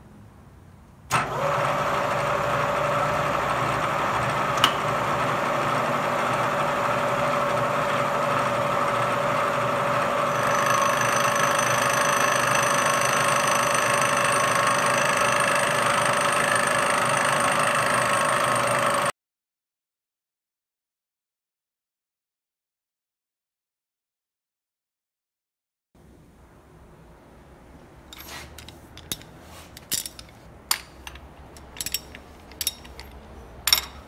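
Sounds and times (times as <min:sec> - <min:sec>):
end mill cutting metal whine: 0:01.2 - 0:19.1
milling machine spindle running: 0:01.2 - 0:19.1.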